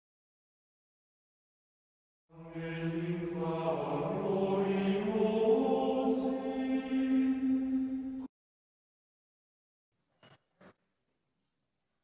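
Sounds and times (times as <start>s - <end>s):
choral chant: 2.3s - 8.3s.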